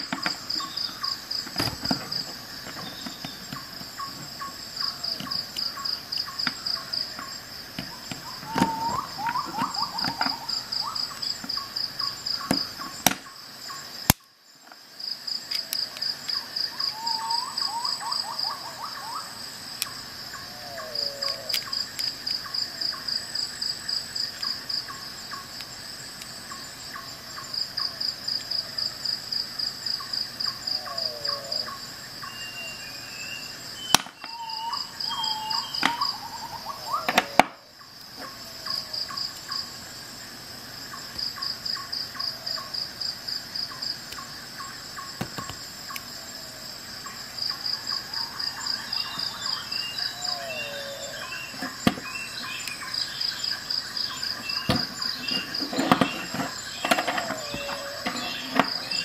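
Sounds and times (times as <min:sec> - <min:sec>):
crickets chirping: 0:00.0 - 0:59.0
lower calls sliding down in pitch: 0:08.2 - 0:11.0.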